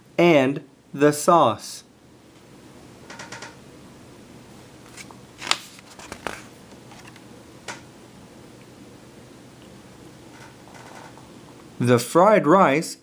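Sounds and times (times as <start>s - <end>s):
faint steady hiss: 0.0s - 13.0s
page turning paper rustles: 4.8s - 7.2s.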